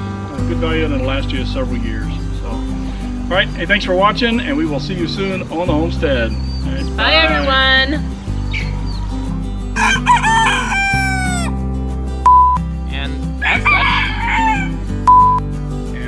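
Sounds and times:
rooster crowing: 0:09.8 - 0:11.6, 0:13.4 - 0:14.8
short high-pitched beeps: 0:12.3 - 0:12.6, 0:15.1 - 0:15.4.

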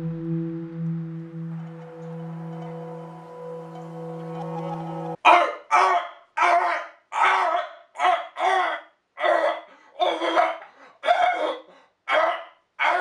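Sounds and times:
person's loud pitched outbursts: 0:05.2 - 0:13.0.

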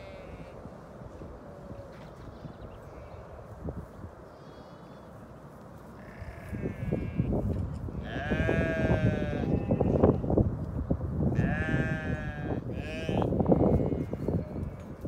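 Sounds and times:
sheep bleating: 0:00.0 - 0:00.6, 0:06.0 - 0:07.3, 0:08.0 - 0:10.2, 0:11.4 - 0:14.9.

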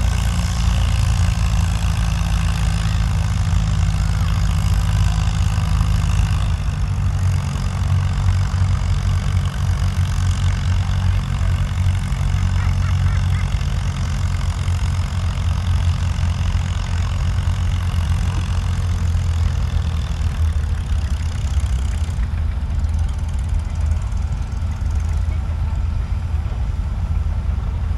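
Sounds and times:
tractor engine idling: 0:00.0 - 0:27.9.

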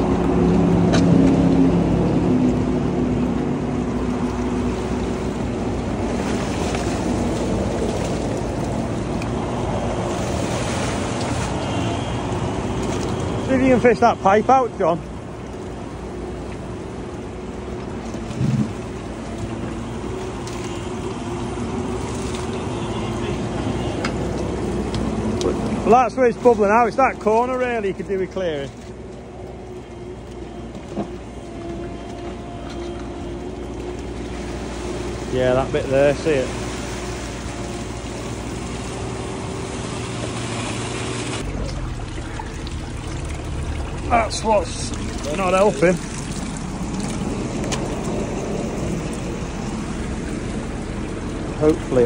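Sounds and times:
diesel engine running: 0:00.0 - 0:52.0.

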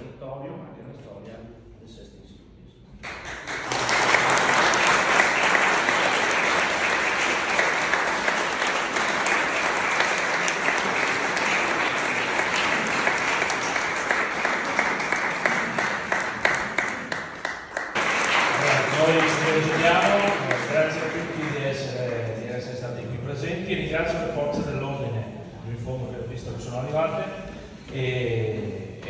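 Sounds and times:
audience applauding: 0:03.0 - 0:22.4.

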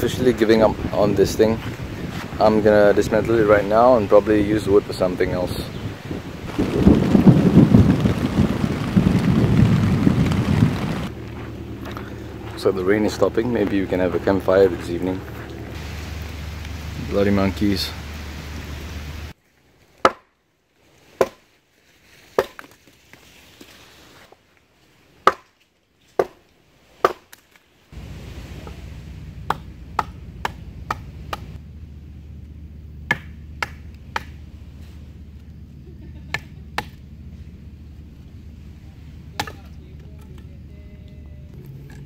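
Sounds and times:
background hiss: 0:00.0 - 0:19.4, 0:27.7 - 0:41.7
wood chopping: 0:20.0 - 0:20.3, 0:21.2 - 0:21.5, 0:22.3 - 0:22.8, 0:25.2 - 0:25.6, 0:26.2 - 0:26.4, 0:27.0 - 0:27.4, 0:29.4 - 0:31.5, 0:33.0 - 0:34.4, 0:36.3 - 0:37.0, 0:39.4 - 0:39.7.

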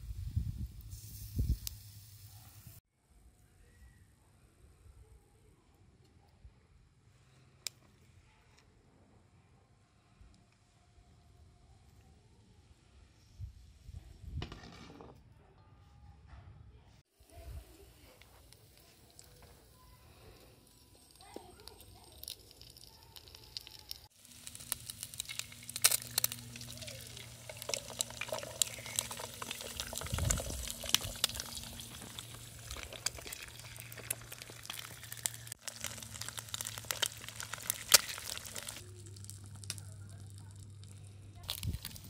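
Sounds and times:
food sizzling in hot oil: 0:00.0 - 0:02.8, 0:17.2 - 0:39.8, 0:41.5 - 0:42.0
eggshells cracked against pan: 0:20.8 - 0:40.9, 0:41.5 - 0:42.0.

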